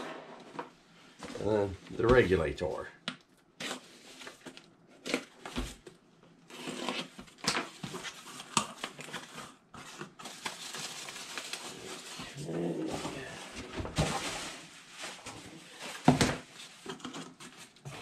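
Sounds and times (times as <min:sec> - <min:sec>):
packing tape tearing: 0:06.5 - 0:09.5
packing peanuts rustling: 0:07.7 - 0:13.5.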